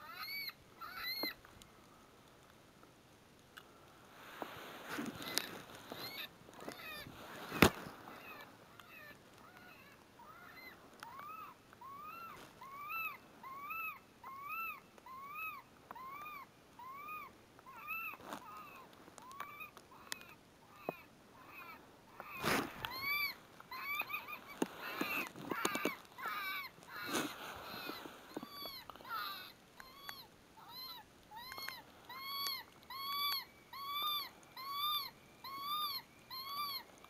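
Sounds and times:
electronic animal distress squeals: 27.7s - 36.9s.

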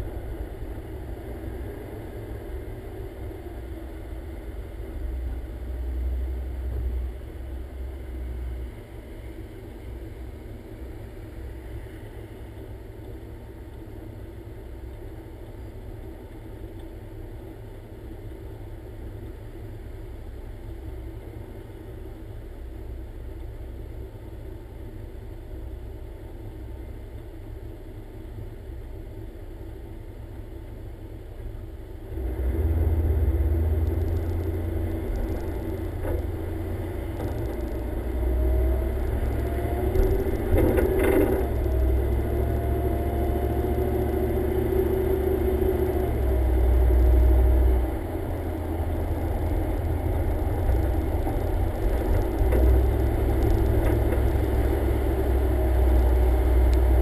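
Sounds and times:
car pulling away: 32.1s - 57.0s
car engine idling: 33.4s - 42.4s.

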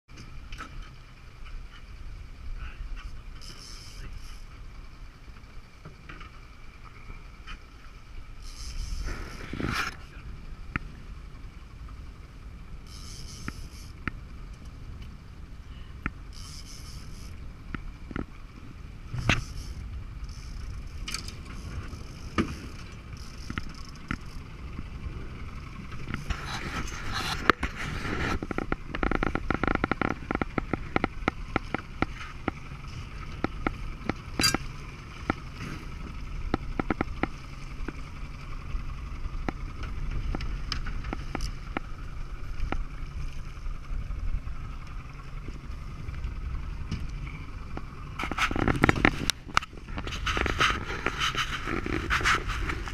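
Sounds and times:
fishing reel clicking: 12.8s - 14.0s, 16.3s - 17.4s, 19.3s - 24.4s.

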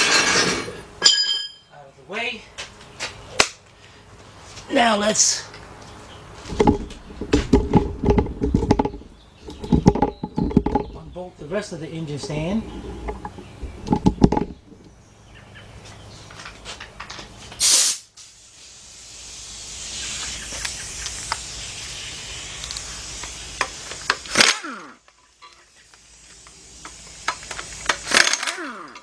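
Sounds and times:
air hissing bursts: 17.6s - 24.9s, 25.8s - 28.8s.

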